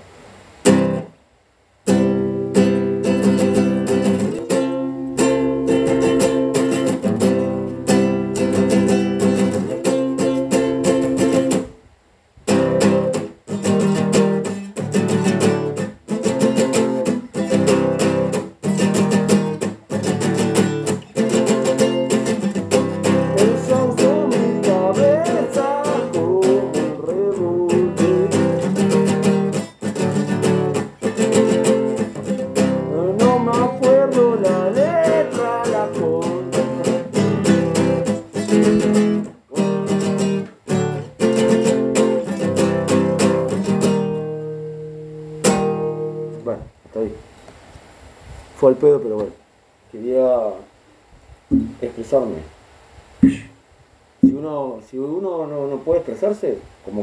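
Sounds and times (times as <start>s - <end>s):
acoustic guitar strumming: 0.6s - 1.2s, 1.8s - 11.8s, 12.5s - 46.6s, 51.5s - 51.9s, 53.2s - 53.6s, 54.2s - 54.6s
person singing: 23.0s - 29.0s, 32.7s - 37.4s.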